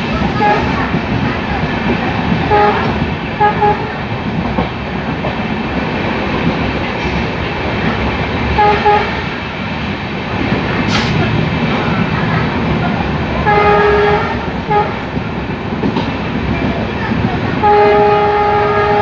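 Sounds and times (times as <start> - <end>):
train wheels clacking on rails: 0.0 - 19.0
locomotive horn toots: 0.4 - 0.8, 2.5 - 4.0, 8.5 - 9.3, 13.4 - 15.1, 17.6 - 19.0.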